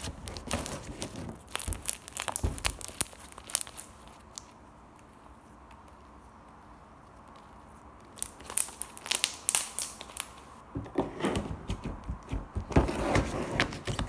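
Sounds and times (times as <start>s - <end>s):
slime popping and squelching: 0.0s - 4.6s, 8.0s - 10.6s.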